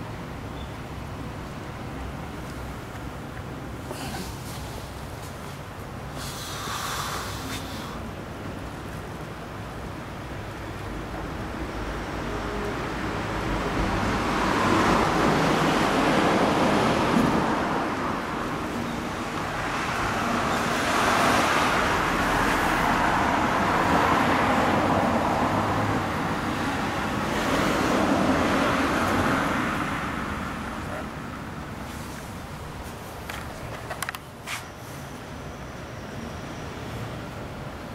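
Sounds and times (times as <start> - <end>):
road traffic passing: 0.0 - 37.9.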